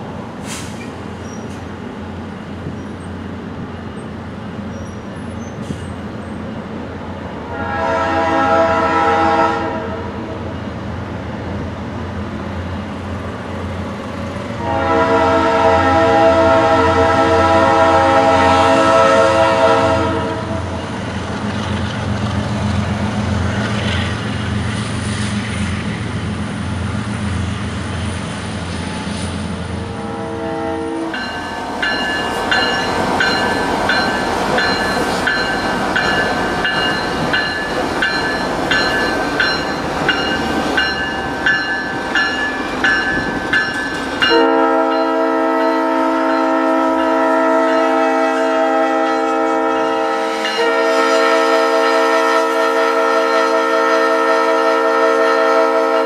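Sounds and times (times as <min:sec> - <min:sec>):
passing train rumble: 0:00.0 - 0:56.0
locomotive air horn blasts: 0:07.5 - 0:10.4, 0:14.6 - 0:20.8, 0:29.8 - 0:32.0, 0:44.2 - 0:56.0
bell ringing: 0:31.2 - 0:45.8.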